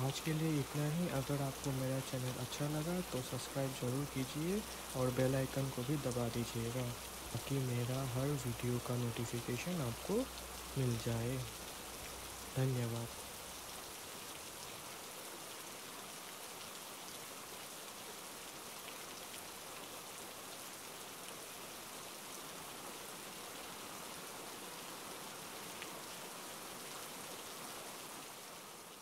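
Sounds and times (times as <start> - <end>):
rain hissing: 0.0 - 15.8.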